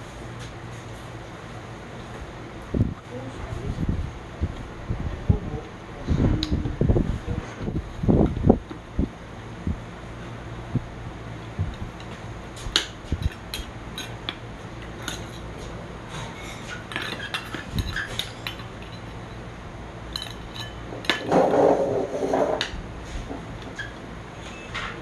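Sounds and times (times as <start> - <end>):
steady low hum: 0.0 - 25.0
metal spoon clinking on bowl: 13.2 - 15.5, 16.8 - 19.4, 20.1 - 21.3.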